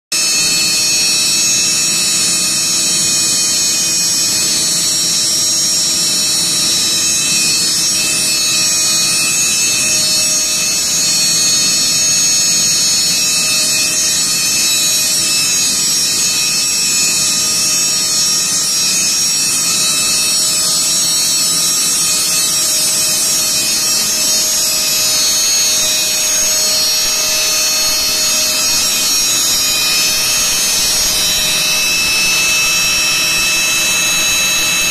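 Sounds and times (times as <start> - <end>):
air compressor running: 0.2 - 34.9.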